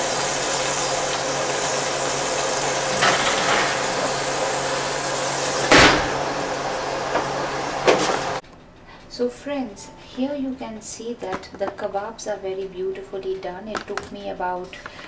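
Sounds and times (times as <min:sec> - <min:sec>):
steady low hum: 0:01.5 - 0:08.9
oven rack metal knock: 0:05.6 - 0:06.4
oven door banging shut: 0:05.6 - 0:06.5.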